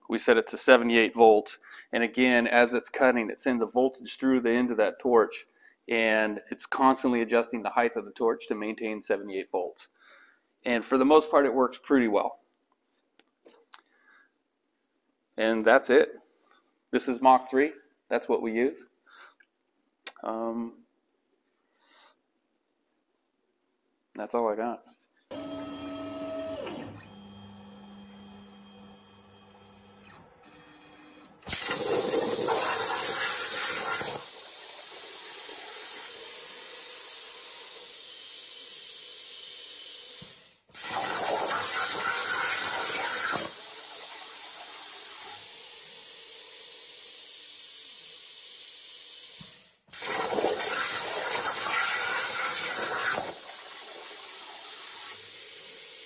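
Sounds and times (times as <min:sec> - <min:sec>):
plasma torch cutting hiss: 0:31.4 - 0:36.9, 0:40.1 - 0:56.0.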